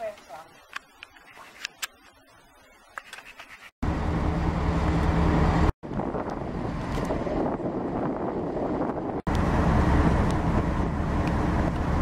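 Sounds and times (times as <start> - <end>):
ship engines droning: 3.8 - 5.7, 9.3 - 12.0.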